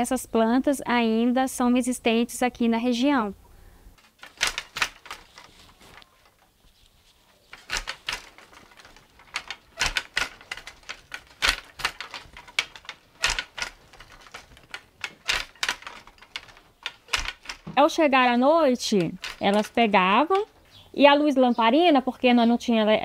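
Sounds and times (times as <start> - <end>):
wooden loom clacks and knocks: 4.0 - 6.6, 7.4 - 20.7.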